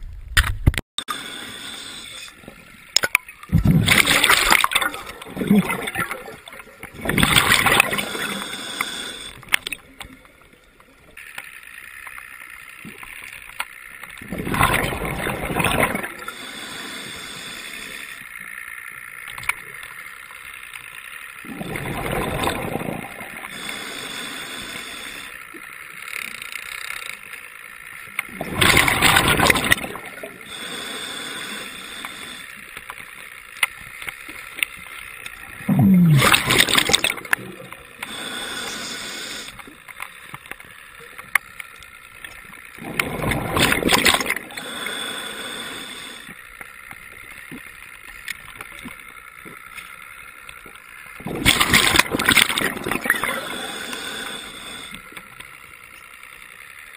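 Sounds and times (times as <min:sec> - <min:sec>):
steady low underwater hiss: 0:01.0 - 0:56.9
rushing surge of water: 0:35.7 - 0:37.4.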